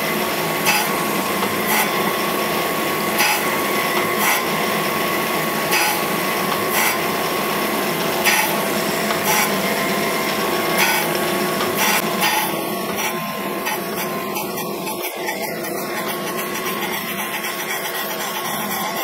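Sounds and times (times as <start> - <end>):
steady whine: 0.0 - 19.0
grinding wheel rasp: 8.0 - 19.0.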